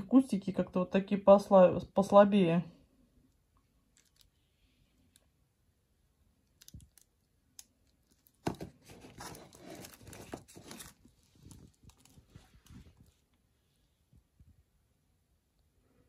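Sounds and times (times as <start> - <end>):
plastic containers crinkling: 3.9 - 4.4, 7.8 - 13.2.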